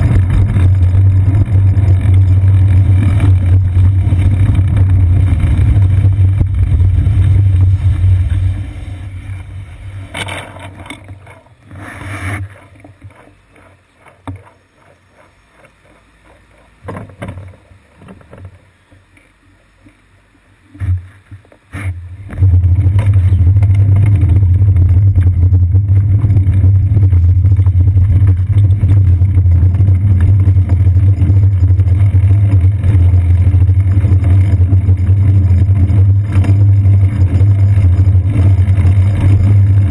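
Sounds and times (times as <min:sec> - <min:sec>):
wind on microphone: 0:00.0 - 0:10.2
road vibration rumble: 0:00.0 - 0:19.8, 0:20.6 - 0:39.9.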